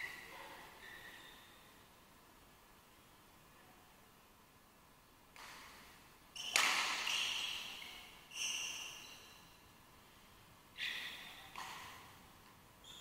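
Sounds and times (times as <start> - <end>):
racket hitting shuttlecock: 6.4 - 8.0, 11.5 - 12.0.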